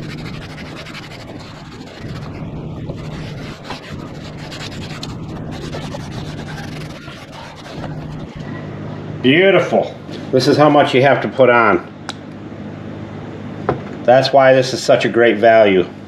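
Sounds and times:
towel rubbing on plastic: 0:00.0 - 0:08.5
low steady hum: 0:00.0 - 0:16.0.

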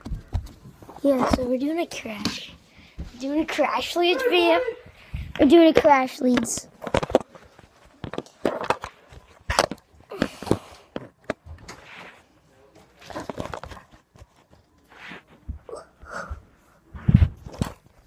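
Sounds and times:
phone being handled: 0:06.4 - 0:09.9
shuffling on carpet: 0:14.4 - 0:15.5.

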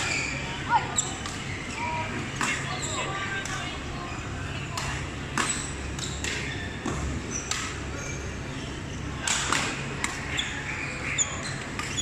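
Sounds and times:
shoes squeaking on court floor: 0:00.0 - 0:01.7, 0:05.5 - 0:09.1, 0:10.3 - 0:12.0
low hall hum: 0:00.0 - 0:12.0
rackets striking shuttlecocks: 0:04.7 - 0:07.9, 0:09.2 - 0:10.4.

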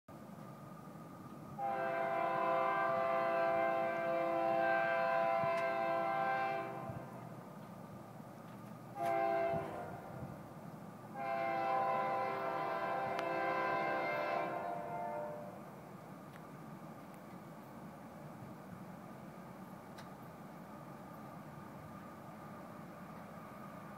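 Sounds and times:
locomotive air horn blasts: 0:01.6 - 0:07.2, 0:09.0 - 0:10.2, 0:11.1 - 0:15.6.

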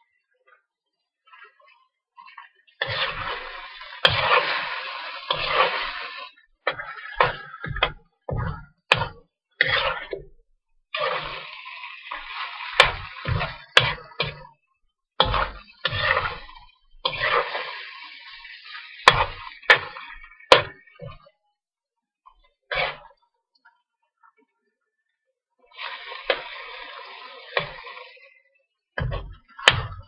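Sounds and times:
food sizzling: 0:02.2 - 0:10.1, 0:10.9 - 0:14.6, 0:15.2 - 0:21.2, 0:25.7 - 0:30.0
metal spoon scraping a wok: 0:02.8 - 0:07.8, 0:09.6 - 0:10.2, 0:15.3 - 0:18.0, 0:22.7 - 0:23.1.

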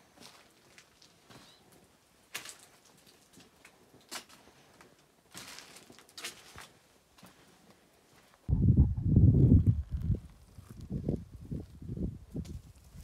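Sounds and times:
footsteps on stony dirt path: 0:02.3 - 0:08.4.

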